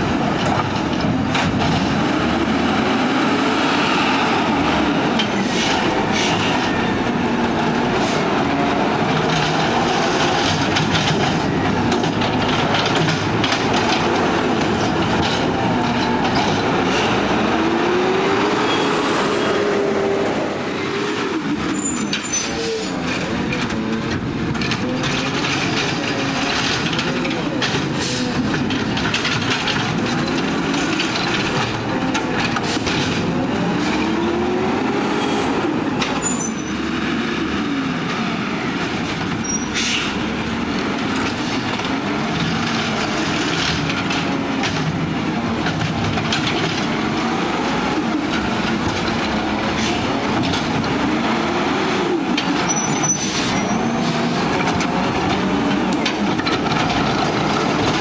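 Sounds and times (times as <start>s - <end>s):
garbage truck engine revving: 0.1s - 22.0s.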